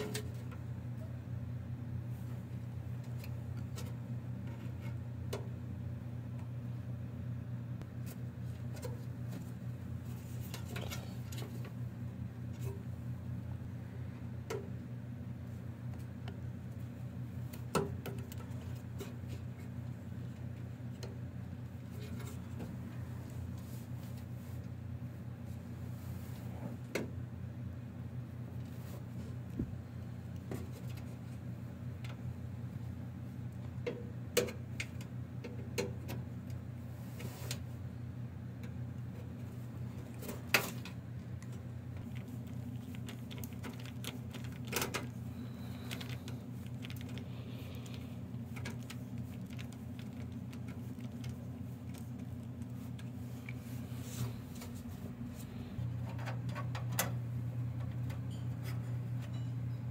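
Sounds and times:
low hum: 0:36.4 - 0:59.9.

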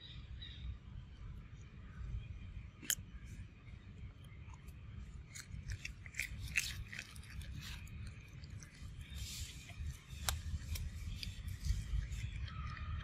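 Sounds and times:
monkey chewing crunchy fruit: 0:04.5 - 0:13.0.

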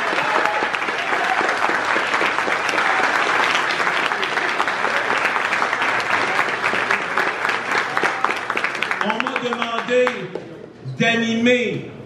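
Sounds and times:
voices cheering: 0:00.0 - 0:07.2
crowd applauding: 0:00.0 - 0:10.4.

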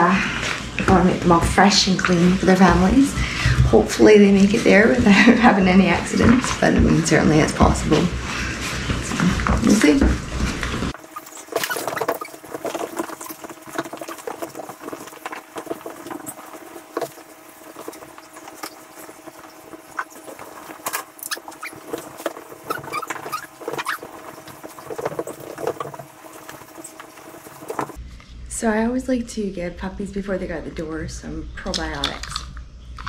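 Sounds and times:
towel rubbing and rustling: 0:08.2 - 0:28.0
small claws scrabbling: 0:10.9 - 0:28.0.

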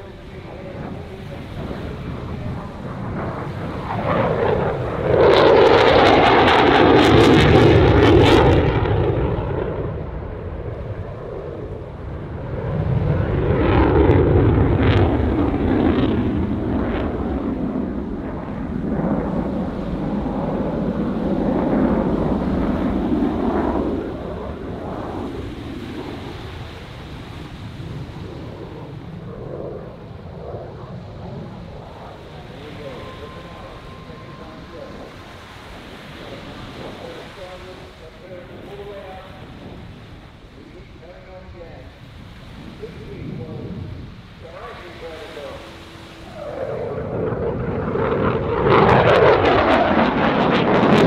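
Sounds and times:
jet engines roaring: 0:00.0 - 0:51.0.

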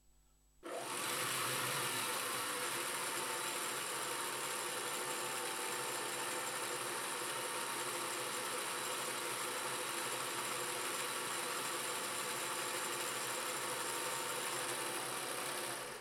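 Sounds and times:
sewing machine motor running: 0:00.6 - 0:16.0.

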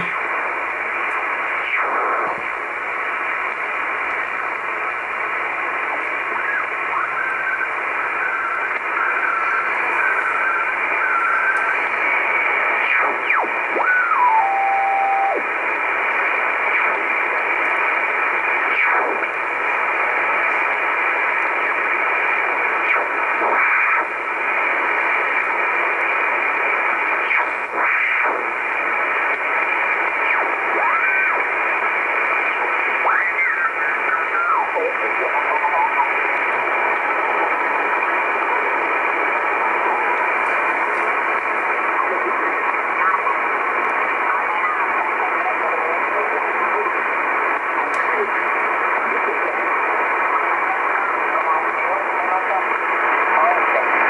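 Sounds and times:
radio static hiss: 0:00.0 - 0:54.0
radio whistles sliding: 0:06.4 - 0:12.0.

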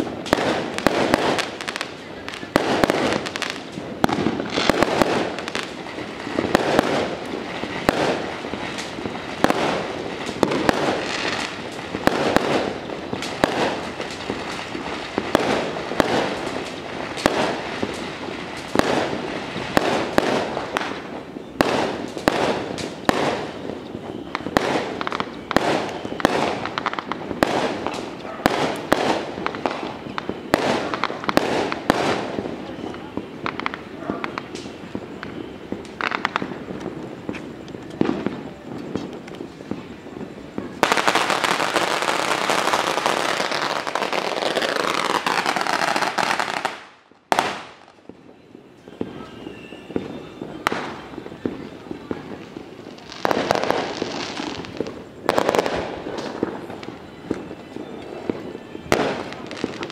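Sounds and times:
firecrackers banging: 0:00.0 - 0:59.9.

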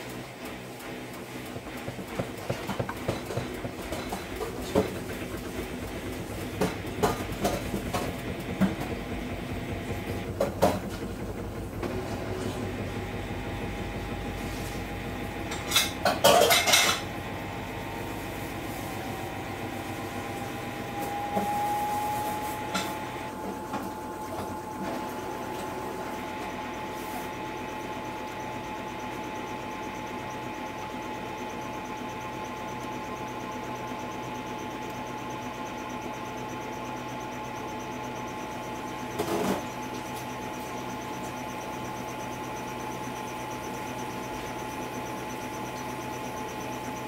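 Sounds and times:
steady whine: 0:00.0 - 0:47.0
washing machine hum: 0:00.0 - 0:47.0
clatter: 0:15.5 - 0:17.1.

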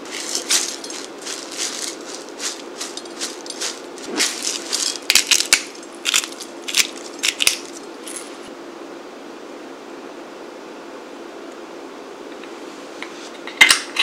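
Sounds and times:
faint steady hum: 0:00.0 - 0:14.0
pepper grinder crunching clicks: 0:00.1 - 0:07.8.

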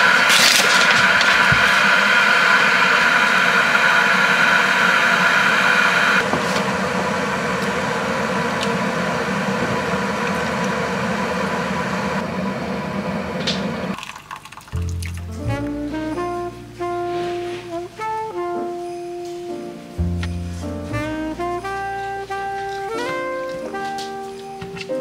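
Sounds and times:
electric kettle heating water: 0:00.0 - 0:14.7.

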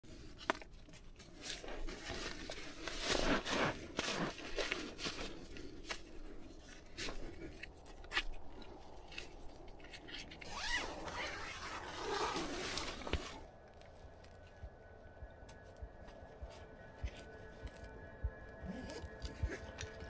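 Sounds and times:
fabric and gear rustling: 0:00.1 - 0:14.5
laces pulled tight: 0:07.0 - 0:13.4.

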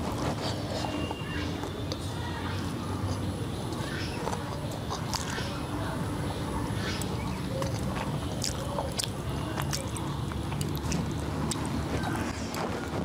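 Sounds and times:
chewing: 0:00.0 - 0:06.0, 0:06.8 - 0:13.0.

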